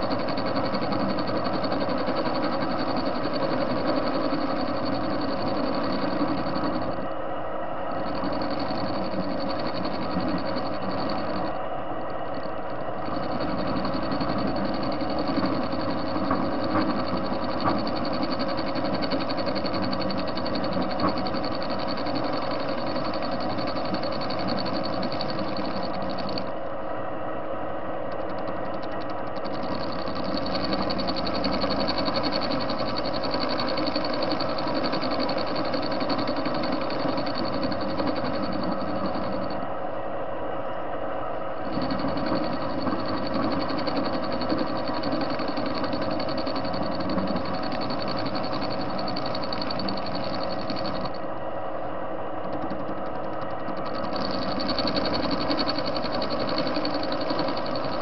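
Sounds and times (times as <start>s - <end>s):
lathe whirring: 8.0s - 26.6s, 28.1s - 39.7s, 41.6s - 51.4s.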